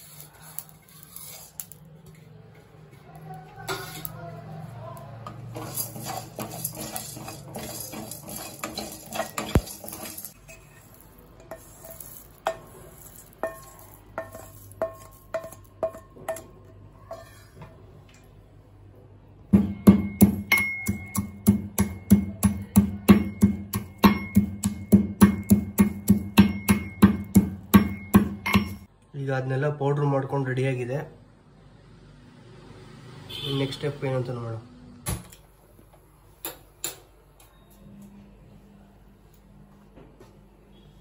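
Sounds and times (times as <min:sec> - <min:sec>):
spatula scraping spices in a pan: 0:00.0 - 0:01.8, 0:03.7 - 0:04.2, 0:05.3 - 0:17.7, 0:20.3 - 0:28.8
spices tapping into metal mortar: 0:05.4 - 0:17.2, 0:19.5 - 0:28.9
pestle pounding in metal mortar: 0:05.5 - 0:10.4, 0:12.4 - 0:16.6, 0:19.5 - 0:28.9.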